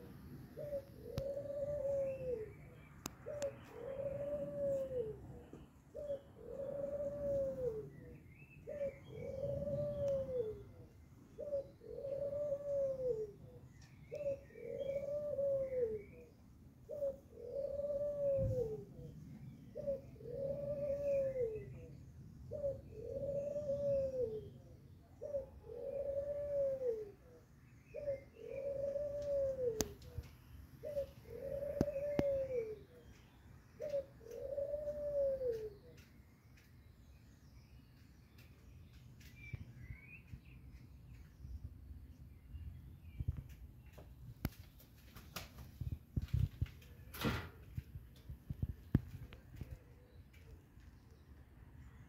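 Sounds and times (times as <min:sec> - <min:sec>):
dove cooing: 0:00.0 - 0:33.2, 0:33.8 - 0:36.1.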